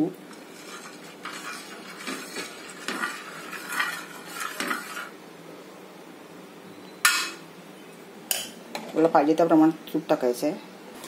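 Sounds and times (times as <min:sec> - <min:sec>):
metal spoon scraping griddle: 0:00.3 - 0:05.2.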